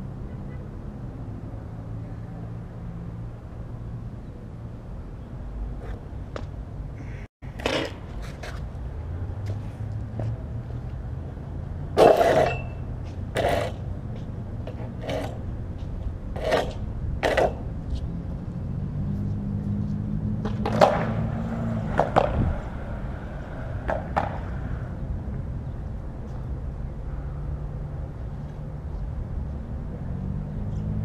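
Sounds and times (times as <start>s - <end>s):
skateboard clacking on concrete: 7.5s - 8.7s, 12.0s - 13.8s, 14.6s - 15.4s, 16.3s - 17.7s, 20.4s - 21.1s, 21.9s - 22.4s, 23.9s - 24.4s
skateboard wheels rolling: 7.5s - 11.0s, 11.9s - 18.5s, 20.4s - 25.4s.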